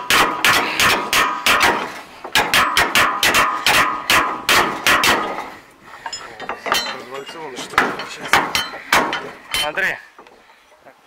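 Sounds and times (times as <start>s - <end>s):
hammer striking metal: 0.0s - 5.5s, 6.1s - 9.8s
light metal clinks: 6.0s - 9.8s.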